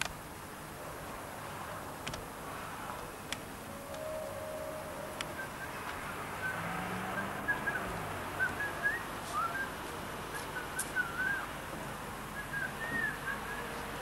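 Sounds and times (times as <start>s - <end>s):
low background noise: 0.0s - 14.0s
high whistled chirps: 3.7s - 6.6s, 7.2s - 11.5s, 12.4s - 13.8s.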